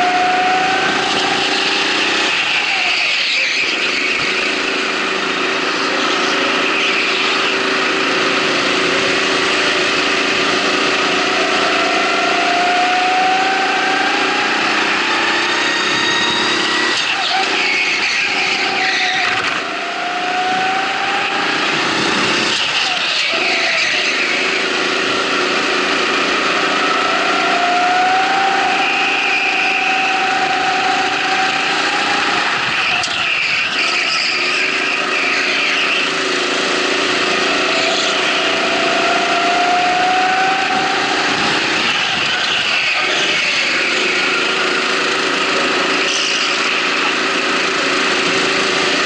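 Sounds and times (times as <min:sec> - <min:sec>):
go-kart motor at speed: 0:00.0 - 0:49.0.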